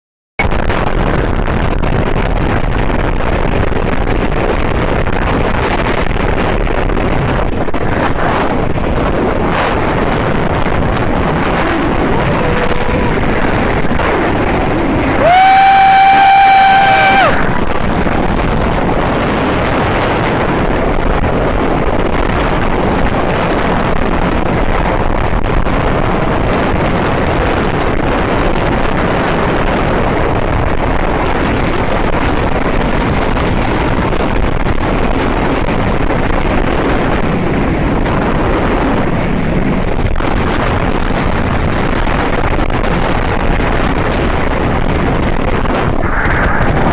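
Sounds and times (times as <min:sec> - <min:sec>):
wind on microphone: 0:00.4 - 0:46.9
outboard motor running: 0:00.5 - 0:46.9
water rushing past: 0:05.0 - 0:19.8, 0:44.8 - 0:46.9.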